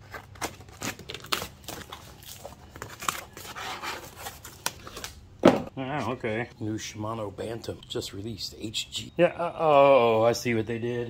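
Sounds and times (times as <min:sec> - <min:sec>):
cardboard tearing and scraping: 0:00.0 - 0:05.2.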